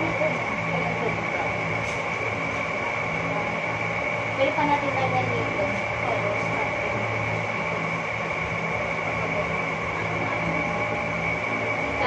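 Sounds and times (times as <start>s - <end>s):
high-pitched whine: 0.0s - 12.0s
machine hum: 0.0s - 12.0s.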